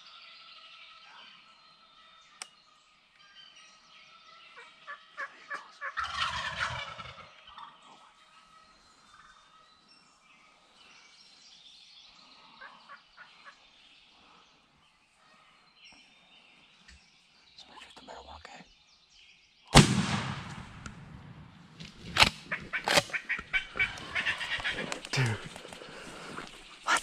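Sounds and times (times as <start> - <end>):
wild turkeys calling: 4.5 - 9.5, 22.1 - 27.0
shotgun blast: 19.7 - 23.0
sharp cracks: 19.7 - 25.8.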